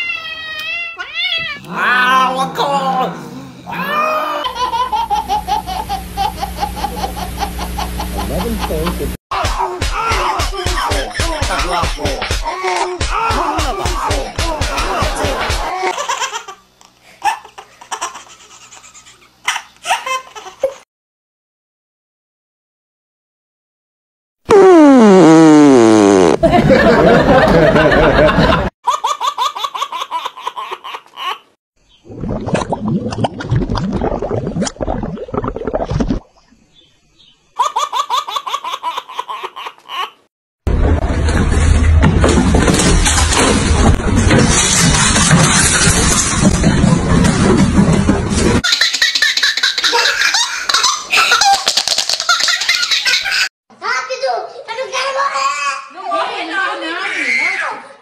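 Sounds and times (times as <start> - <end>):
baby laughing: 4.2 - 16.6, 17.2 - 20.8, 28.9 - 31.5, 37.6 - 40.2, 48.6 - 53.5
cartoon fart sound effect: 24.5 - 26.5.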